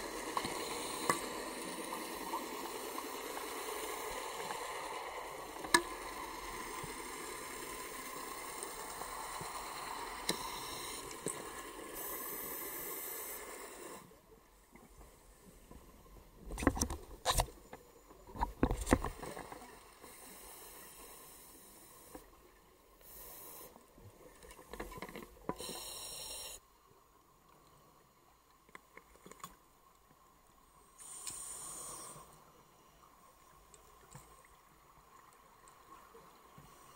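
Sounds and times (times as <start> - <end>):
regulator inhalation hisses: 6.2 - 14.2, 23.0 - 23.8, 25.6 - 26.6, 31.0 - 32.5.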